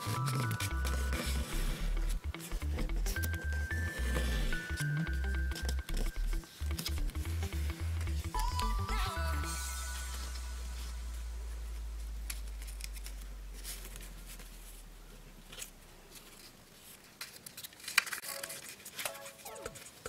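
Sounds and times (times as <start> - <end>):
paper rustling and crackling: 0.0 - 4.9, 12.2 - 20.0
background music: 0.0 - 11.7.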